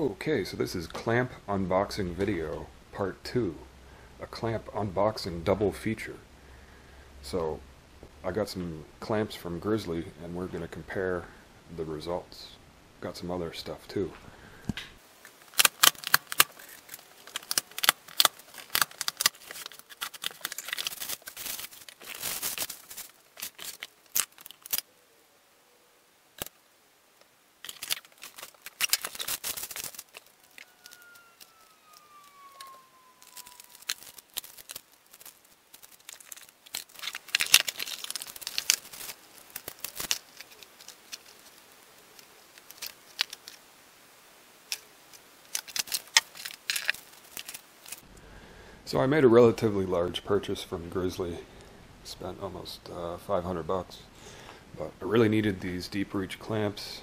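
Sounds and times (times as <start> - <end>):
packing paper crackling: 15.3 - 24.9, 27.6 - 43.7, 44.7 - 48.0
packing tape ripping: 15.4 - 24.9, 27.6 - 43.6, 45.4 - 48.0
faint falling tone: 30.2 - 35.3.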